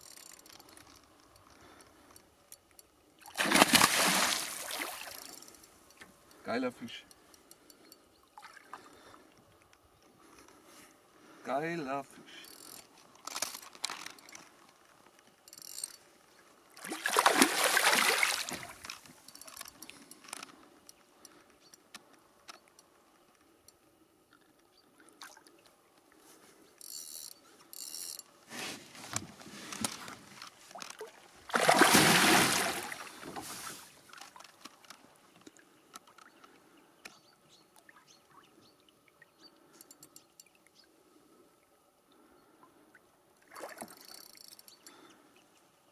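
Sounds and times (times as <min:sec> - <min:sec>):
fish thrashing and splashing: 0:03.3 - 0:05.5, 0:16.8 - 0:19.0, 0:30.8 - 0:33.7.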